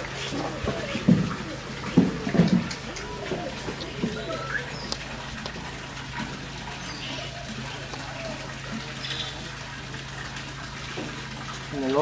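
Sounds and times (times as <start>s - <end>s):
low steady hum: 0.0s - 11.7s
water running: 0.0s - 12.0s.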